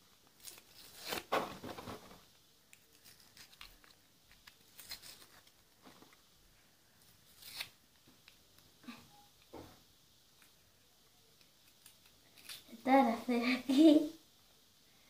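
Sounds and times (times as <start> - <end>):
plastic packaging crinkling: 0.2 - 6.3.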